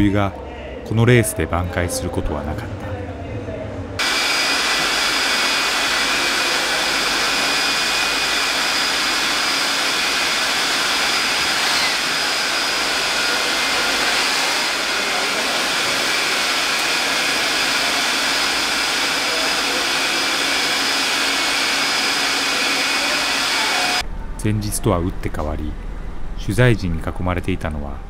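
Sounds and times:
rushing machine noise: 0:04.0 - 0:24.1.

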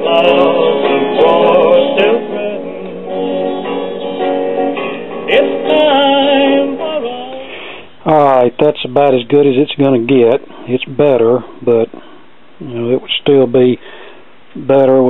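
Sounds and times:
song with singing on record player: 0:00.0 - 0:08.0.

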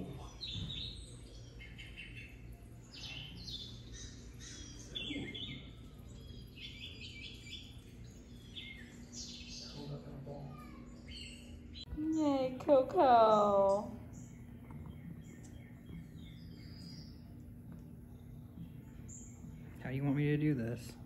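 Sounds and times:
recorded birds chirping: 0:00.0 - 0:21.0.

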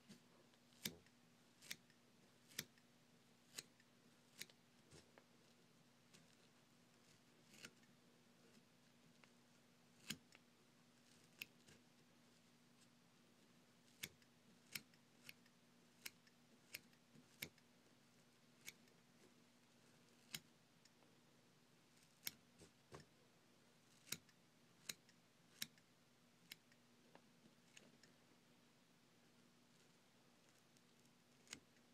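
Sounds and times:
scissors snipping hair: 0:00.7 - 0:02.8, 0:03.5 - 0:04.6.

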